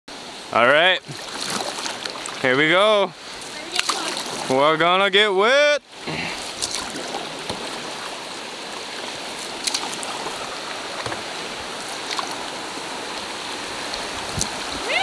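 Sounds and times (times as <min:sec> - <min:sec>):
river rapids rushing: 0:00.2 - 0:15.0
paddle splashes and knocks: 0:01.0 - 0:02.5, 0:03.3 - 0:04.6, 0:06.0 - 0:14.9.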